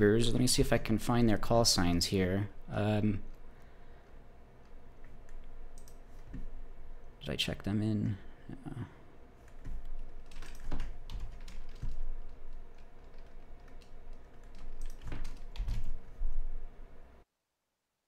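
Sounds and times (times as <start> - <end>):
computer keyboard typing: 4.6 - 6.5, 9.4 - 16.2.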